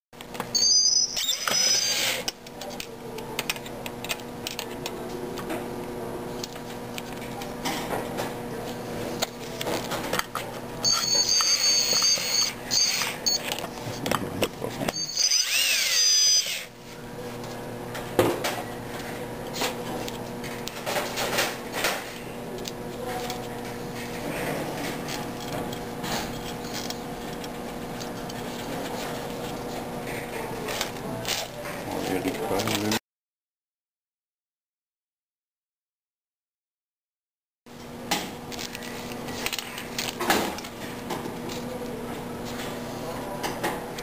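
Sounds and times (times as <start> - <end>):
power drill whirring: 0.6 - 2.3, 10.8 - 13.4, 14.9 - 16.8
steady low hum: 2.3 - 32.7.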